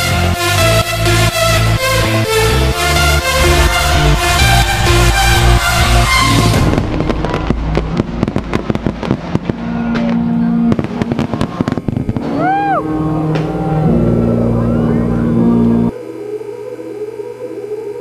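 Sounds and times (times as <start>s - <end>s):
electronic dance music: 0.0s - 9.2s
fireworks bangs and crackles: 6.2s - 12.7s.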